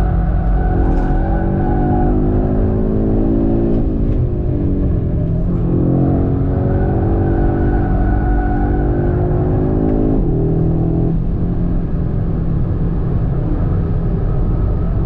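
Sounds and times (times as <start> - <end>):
car engine at full throttle: 0.0 - 15.0.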